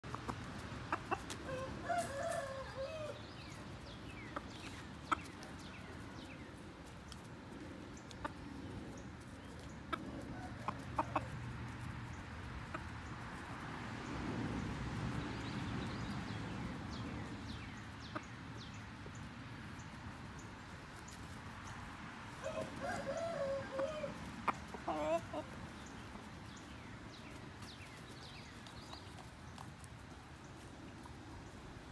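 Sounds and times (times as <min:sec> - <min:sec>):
rooster calling: 0:22.4 - 0:24.2.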